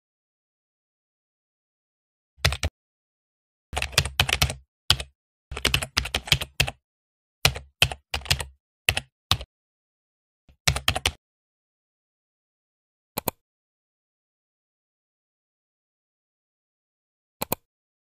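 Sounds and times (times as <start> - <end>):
keyboard typing clicks: 2.4 - 2.7, 3.8 - 6.8, 7.4 - 9.5, 10.6 - 11.2, 13.2 - 13.4, 17.4 - 17.7.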